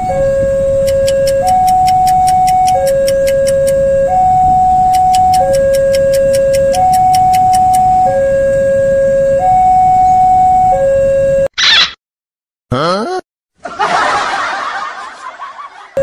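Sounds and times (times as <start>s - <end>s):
two-tone siren: 0.0s - 11.5s.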